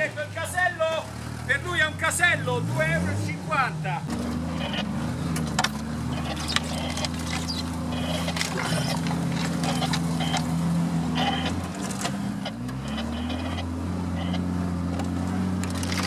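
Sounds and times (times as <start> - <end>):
off-road vehicle engine: 0.0 - 16.0
short squeaks: 4.4 - 14.4.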